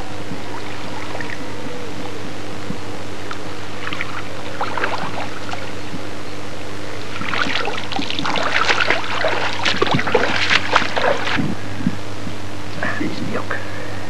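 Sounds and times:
steady low hum: 0.0 - 14.0
person wading through shallows: 3.8 - 5.9, 6.8 - 12.0
water splashing and dripping: 7.2 - 11.4.

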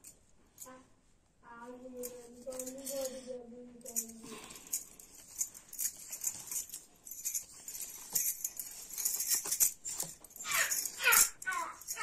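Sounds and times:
glass bangles clinking: 3.8 - 12.0.

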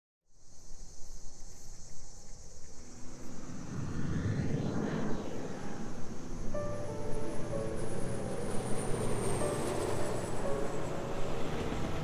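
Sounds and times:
insects chirring: 0.3 - 12.0
jet airliner passing overhead: 2.6 - 12.0.

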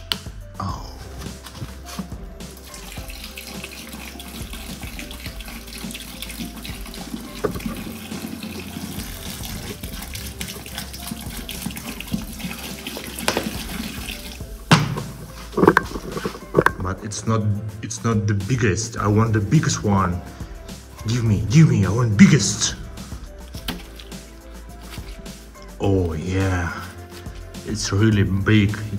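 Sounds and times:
fizzy drink pouring and splashing: 1.4 - 16.9, 22.5 - 27.6.

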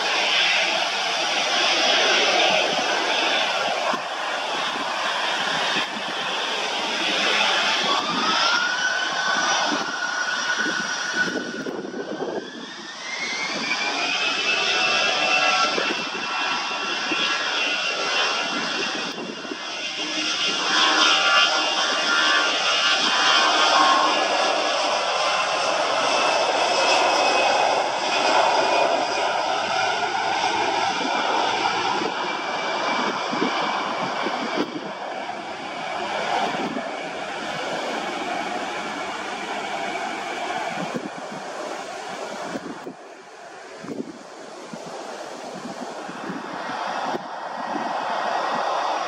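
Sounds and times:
jet engines at high power: 0.0 - 49.0.

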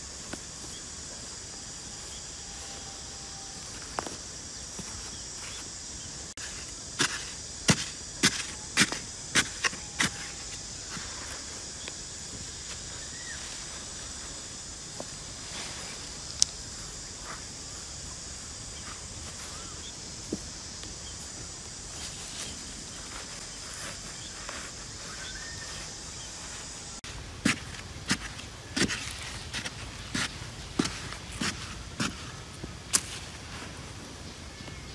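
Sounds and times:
insect chorus: 0.0 - 34.9
hands digging dry soil: 6.3 - 14.3, 18.8 - 33.9
digging stick striking earth: 6.4 - 10.6, 27.4 - 32.3, 32.9 - 33.4.

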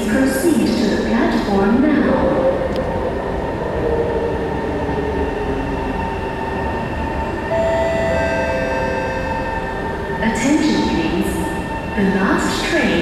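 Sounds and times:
electric train rumbling and whining: 0.0 - 13.0
higher-pitched tones: 7.5 - 10.6.

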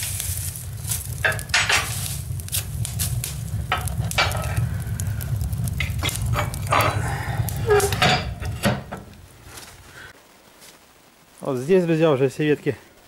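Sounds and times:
sharp pops of fire: 0.0 - 10.2
steady low rumble: 0.0 - 10.2
twigs crackling in wood stove: 0.0 - 12.7.

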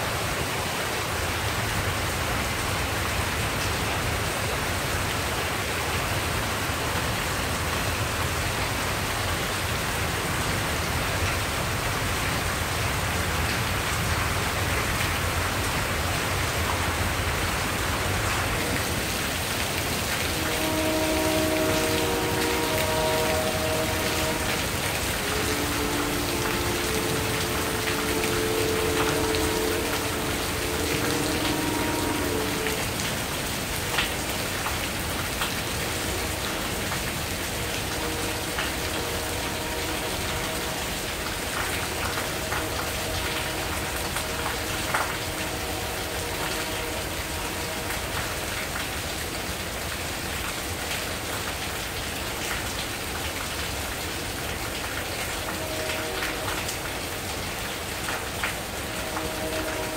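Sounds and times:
heavy rain pouring: 0.0 - 59.9
sharp drips: 17.5 - 47.0.

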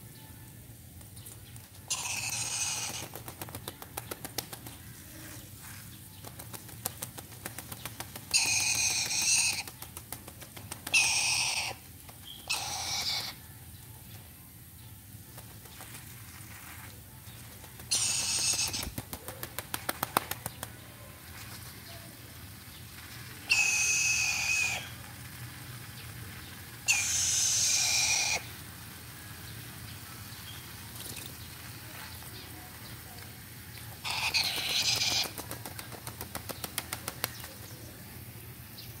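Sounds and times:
wings flapping: 1.3 - 13.3, 15.3 - 28.5, 34.0 - 37.8
parrot screeching: 1.9 - 3.0, 8.4 - 9.6, 11.0 - 11.8, 12.5 - 13.4, 17.9 - 18.8, 23.5 - 24.9, 26.9 - 28.5, 34.0 - 35.3.

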